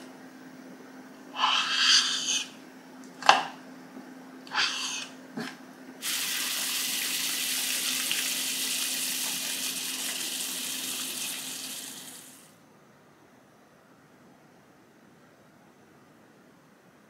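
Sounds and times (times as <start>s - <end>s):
water boiling in a pot: 6.0s - 12.5s.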